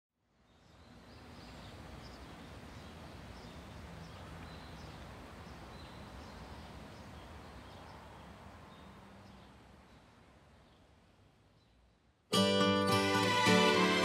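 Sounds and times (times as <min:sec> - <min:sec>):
steady outdoor hiss: 0:00.1 - 0:14.0.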